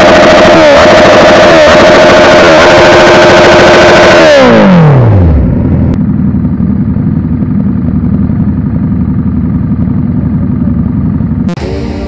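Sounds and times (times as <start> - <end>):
motorcycle engine idling: 5.2 - 12.0.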